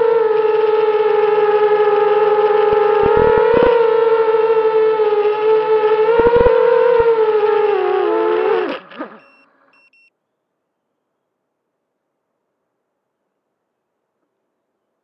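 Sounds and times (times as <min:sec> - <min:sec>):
quadcopter motors whining: 0:00.0 - 0:10.0.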